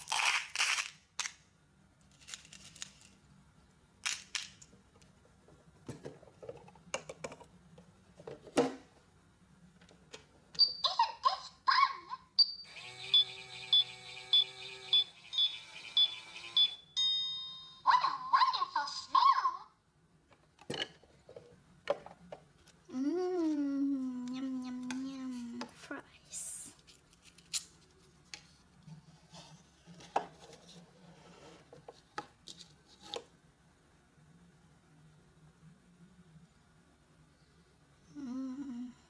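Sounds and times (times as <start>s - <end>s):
toy chime: 12.4s - 17.9s.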